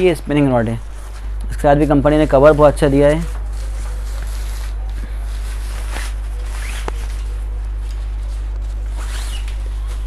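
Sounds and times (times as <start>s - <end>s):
low electrical hum: 0.0s - 10.0s
cloth rustling: 0.8s - 10.0s
zipper being pulled open: 9.0s - 9.8s.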